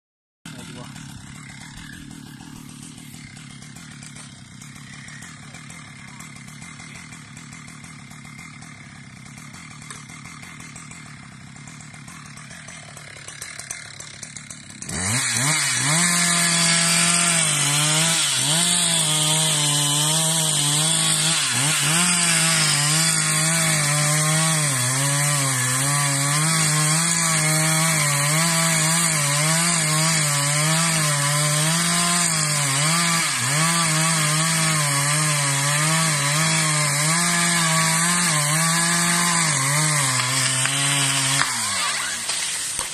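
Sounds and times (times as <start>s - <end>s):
chainsaw cutting tree trunk: 0.5s - 42.9s.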